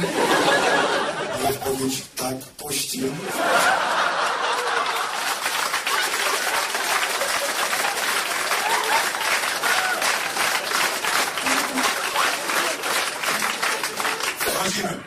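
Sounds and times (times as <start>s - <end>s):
audience laughter: 0.0s - 1.9s, 3.1s - 15.0s
audience applauding: 3.4s - 14.8s.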